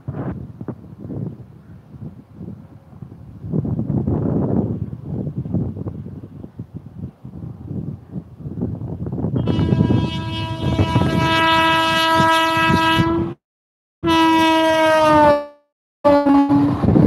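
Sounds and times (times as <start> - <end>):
low rumble of passing train: 0.0 - 13.4, 16.1 - 17.0
locomotive horn blast: 9.4 - 13.4, 14.0 - 17.0.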